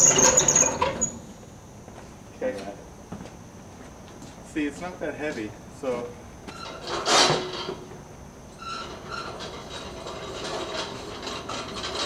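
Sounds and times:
short squeaks: 0.0s - 1.3s, 8.6s - 10.8s
rubbing and rattling: 8.8s - 12.0s.

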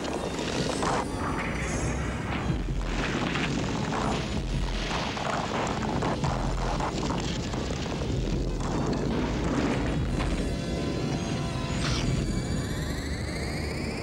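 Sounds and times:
deep rumble: 0.3s - 13.2s
film soundtrack music: 8.7s - 14.0s.

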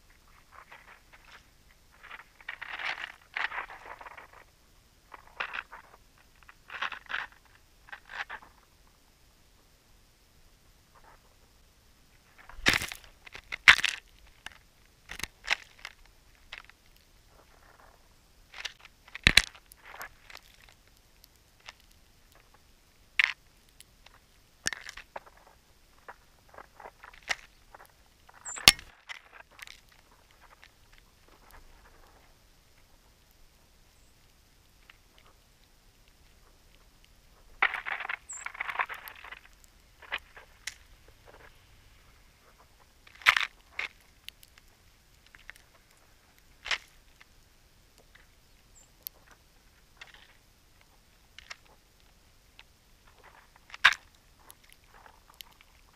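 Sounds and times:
bird cracking seeds: 0.3s - 4.5s, 5.1s - 8.7s, 12.3s - 22.6s, 23.2s - 33.4s, 36.0s - 55.9s
high bird chip: 27.1s - 29.0s, 37.4s - 42.9s.

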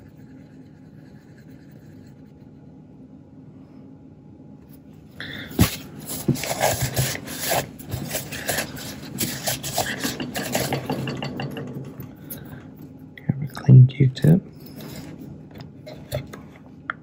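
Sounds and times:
rubbing on plastic: 5.6s - 10.5s.

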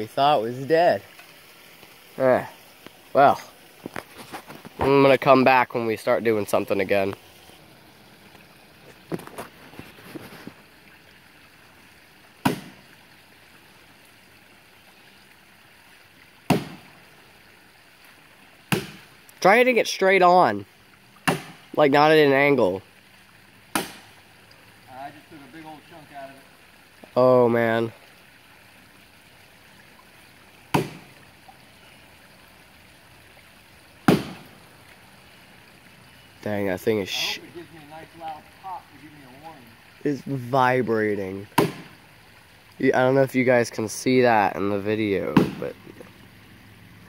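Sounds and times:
creek running: 0.0s - 47.0s
axe chopping wood: 12.4s - 12.8s, 16.5s - 16.8s, 18.7s - 19.0s, 21.2s - 21.6s, 23.7s - 24.1s, 30.7s - 31.1s, 34.0s - 34.5s, 41.6s - 41.9s, 45.4s - 45.7s.

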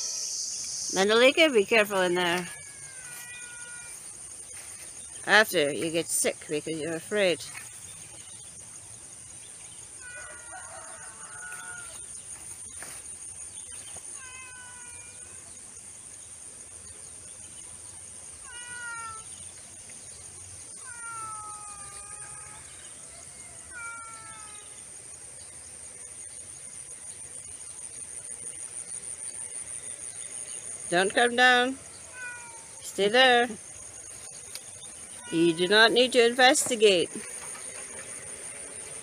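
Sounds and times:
high-pitched insect trill: 0.0s - 39.0s
cat meowing: 2.4s - 4.0s, 14.2s - 15.4s, 18.4s - 19.3s, 20.7s - 22.8s, 23.6s - 24.8s, 32.1s - 32.8s, 35.2s - 35.7s.

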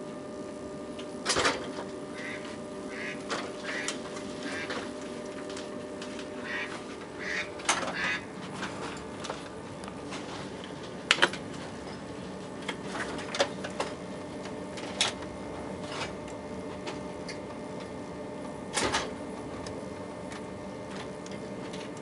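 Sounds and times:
train carriage rumble and hum: 0.9s - 16.1s.

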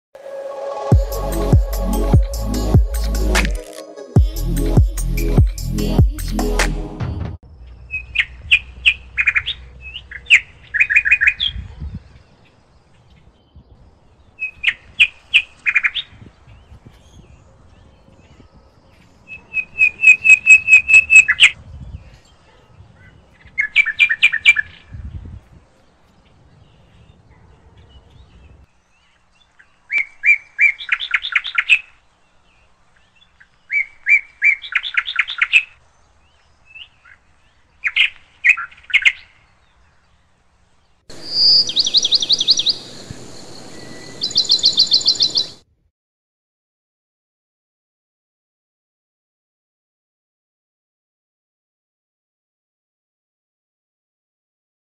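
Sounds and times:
songbird singing trills: 7.5s - 40.2s, 41.1s - 45.6s
steady background hiss: 40.1s - 45.6s.

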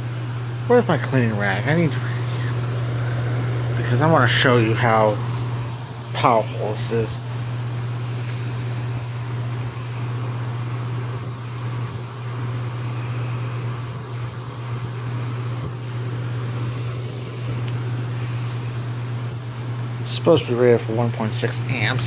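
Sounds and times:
fan air rushing: 0.0s - 22.0s
low motor hum: 0.0s - 22.0s.

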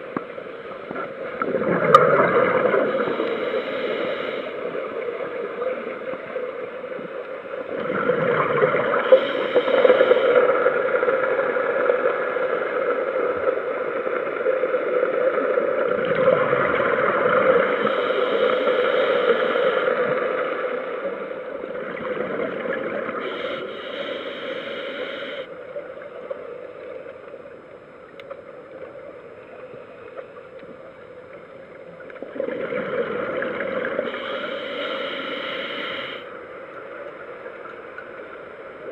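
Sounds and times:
steady hum: 0.0s - 11.8s, 16.0s - 38.9s
regulator bubbles gurgling: 0.9s - 7.0s, 7.6s - 12.0s, 12.8s - 26.2s, 31.7s - 36.9s.

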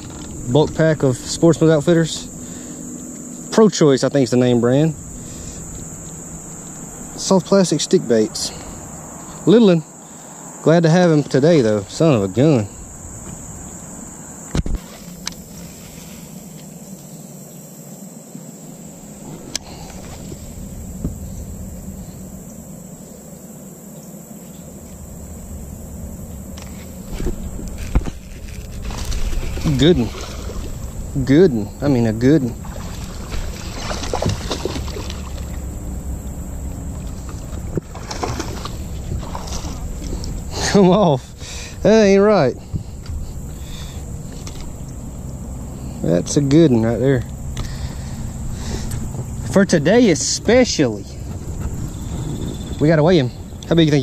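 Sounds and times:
steady low rumble: 0.0s - 9.6s, 18.6s - 54.0s
insects chorus: 0.0s - 54.0s
fish splashing at the surface: 28.9s - 30.8s, 32.6s - 35.7s, 37.0s - 40.3s.

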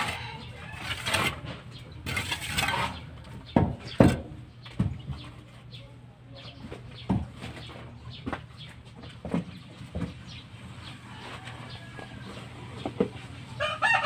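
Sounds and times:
trowel scraping concrete wall: 0.0s - 3.1s.

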